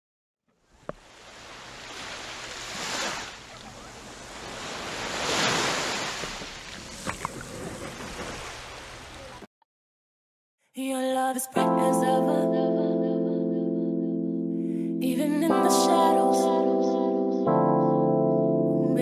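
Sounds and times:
small waves washing on sand: 0.7s - 9.4s.

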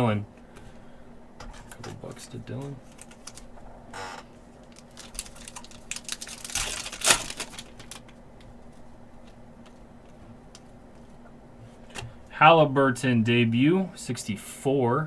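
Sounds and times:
faint steady hum: 0.0s - 15.0s
wrappers crinkling: 2.5s - 3.6s, 4.6s - 8.8s.

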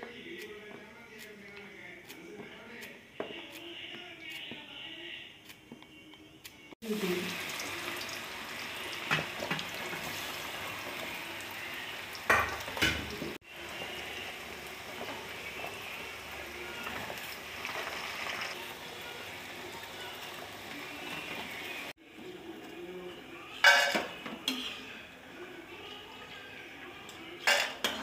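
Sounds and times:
banana deep-frying in oil: 6.8s - 22.8s.

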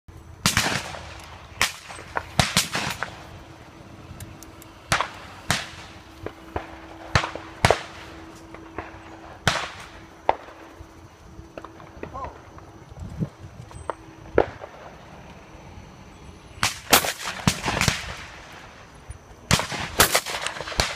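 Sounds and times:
shotgun shots: 0.4s - 3.3s, 4.9s - 10.6s, 16.6s - 18.6s, 19.5s - 20.9s.

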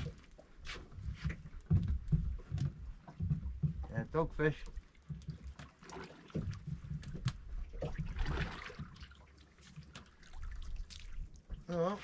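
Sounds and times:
water lapping against boat hull: 0.0s - 12.0s
water splashing: 3.0s - 12.0s.

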